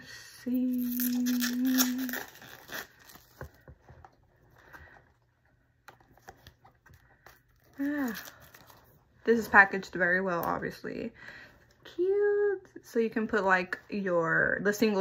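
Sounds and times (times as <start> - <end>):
person humming: 0.5 - 2.3
packaging crinkling: 0.7 - 4.0, 5.9 - 9.0.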